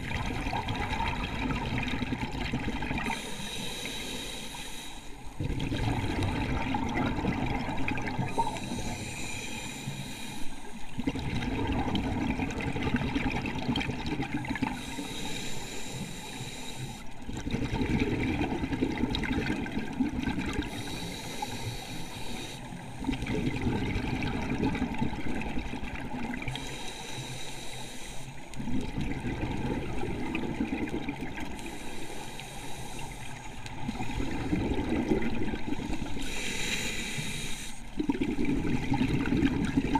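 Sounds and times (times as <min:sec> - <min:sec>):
bubbles rushing on exhale: 0:00.0 - 0:03.2, 0:05.4 - 0:09.0, 0:10.9 - 0:14.8, 0:17.2 - 0:21.0, 0:23.0 - 0:26.6, 0:28.6 - 0:31.8, 0:33.6 - 0:36.3, 0:37.9 - 0:39.9
regulator inhale hiss: 0:03.0 - 0:05.4, 0:08.2 - 0:10.8, 0:14.6 - 0:17.2, 0:20.6 - 0:23.1, 0:26.5 - 0:28.6, 0:31.5 - 0:34.5, 0:35.9 - 0:38.0.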